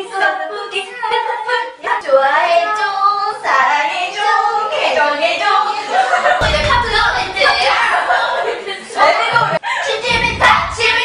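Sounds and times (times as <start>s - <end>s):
women singing together: 0.0s - 11.0s
speech: 6.4s - 11.0s.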